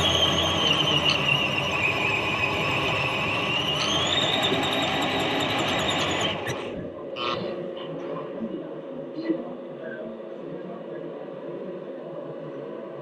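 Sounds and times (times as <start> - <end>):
electric motor and gearbox whining: 0.0 - 6.7.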